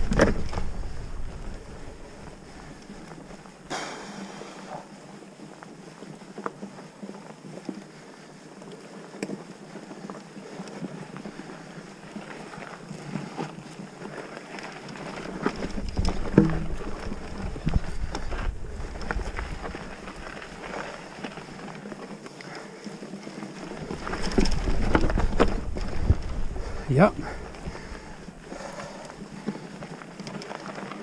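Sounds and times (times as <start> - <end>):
wind buffeting microphone: 0.0 - 2.7, 15.6 - 20.5, 23.7 - 28.8
bike clicks and rattles: 0.0 - 3.7, 4.9 - 31.0
bike tyres rolling on dirt: 0.0 - 31.0.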